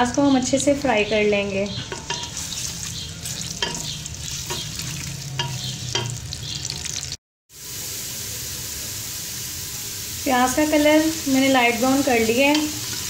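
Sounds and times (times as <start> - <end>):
spatula scraping pot: 1.7 - 6.1
onions sizzling in oil: 1.7 - 13.0.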